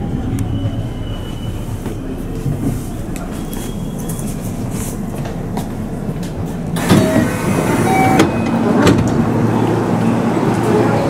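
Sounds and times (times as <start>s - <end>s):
train rumbling to a stop: 0.0s - 11.0s
train doors sliding open: 0.2s - 11.0s.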